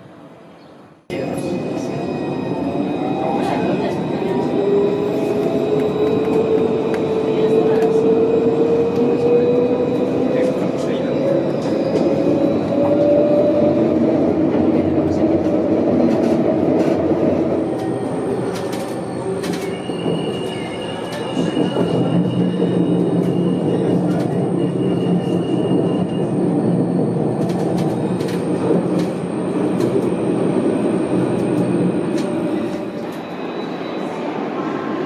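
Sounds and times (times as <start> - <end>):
tram wheels rumbling: 0.0 - 35.0
sharp clicks from rails: 15.4 - 21.5, 27.4 - 30.2.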